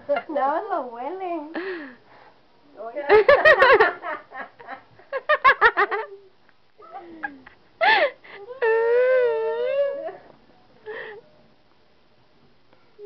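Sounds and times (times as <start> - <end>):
person giggling: 5.6 - 8.5.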